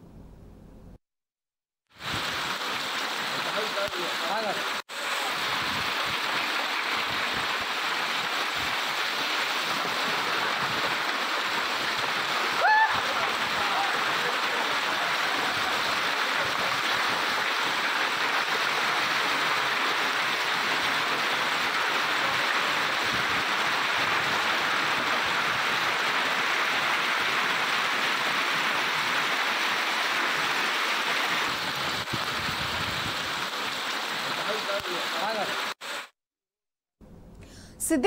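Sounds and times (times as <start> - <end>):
heavy hail and rain: 1.9 - 36.1
strong gusting wind: 5.4 - 6.4, 31.5 - 33.4.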